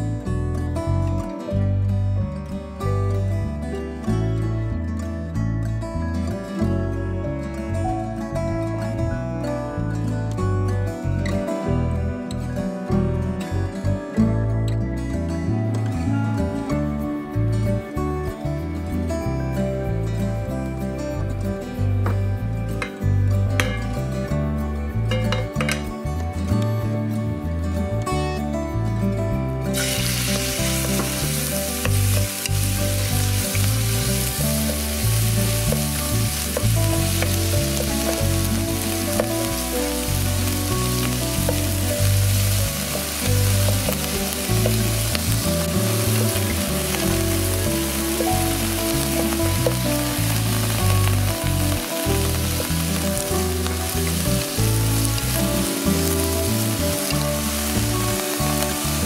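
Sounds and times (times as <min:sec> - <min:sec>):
chicken sizzling in frying pan: 0:29.8 - 0:59.0.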